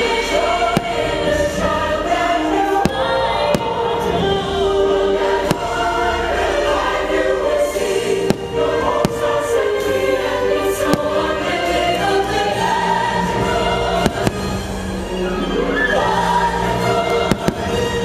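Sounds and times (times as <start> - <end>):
choir singing sustained chords: 0.0 - 18.0
firework bursts banging: 0.8 - 1.2, 8.2 - 9.4, 14.0 - 14.6, 17.3 - 17.8.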